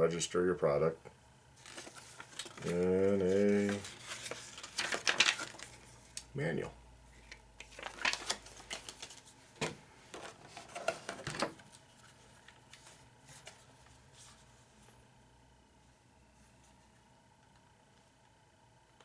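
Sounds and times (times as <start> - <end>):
plastic packaging crackling: 1.6 - 5.8, 7.6 - 9.3.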